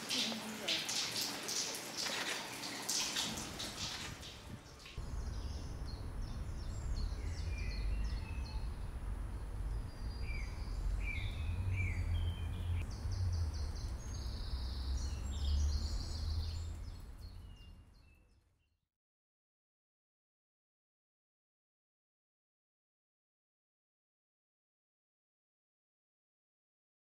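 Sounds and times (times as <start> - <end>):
running water splashing: 0.0 - 5.0
small birds chirping: 4.6 - 18.4
steady low rumble: 5.0 - 17.9.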